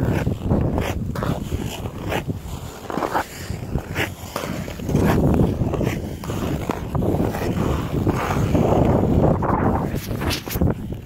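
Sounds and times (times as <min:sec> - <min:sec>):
ice skates scraping on ice: 0:00.0 - 0:11.0.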